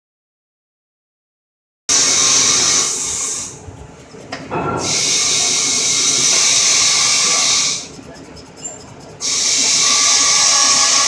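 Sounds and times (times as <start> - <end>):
boring bar hissing cut: 1.9 - 3.6, 4.8 - 7.9, 9.2 - 11.0.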